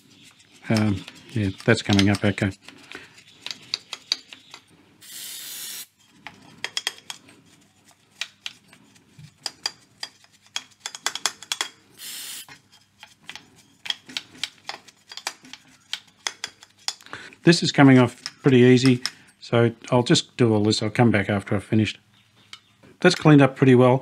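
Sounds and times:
brush scrubbing metal: 0:00.0 - 0:04.7
hissing spray bursts: 0:05.0 - 0:06.0, 0:12.0 - 0:12.5.

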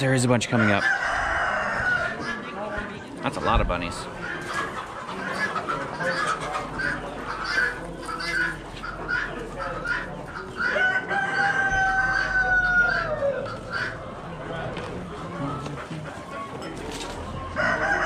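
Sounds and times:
chickens clucking: 0:00.0 - 0:18.0
rooster crowing: 0:00.6 - 0:02.2, 0:10.7 - 0:13.5, 0:17.6 - 0:18.0.

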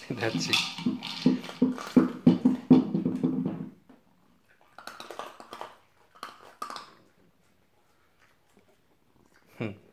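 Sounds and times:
plastic toy knocking on wooden floor: 0:00.2 - 0:03.8.

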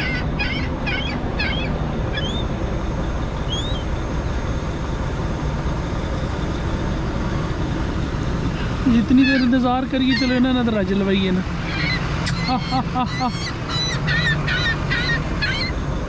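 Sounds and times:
gulls calling: 0:00.0 - 0:04.4, 0:08.0 - 0:16.0
diesel truck engine idling: 0:00.0 - 0:16.0.

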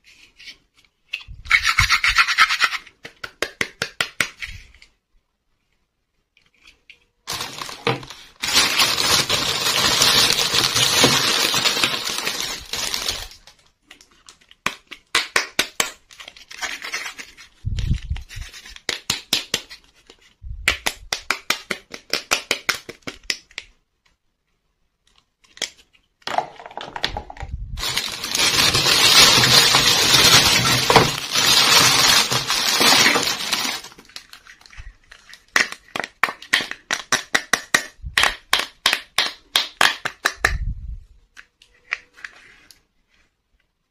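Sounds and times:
plastic wrapping crinkling: 0:07.3 - 0:14.6, 0:27.8 - 0:36.9.

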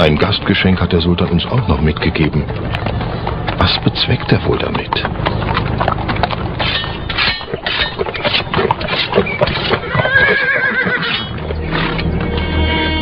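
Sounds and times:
horse hooves clip-clopping: 0:00.0 - 0:13.0
horse whinnying: 0:06.6 - 0:13.0.

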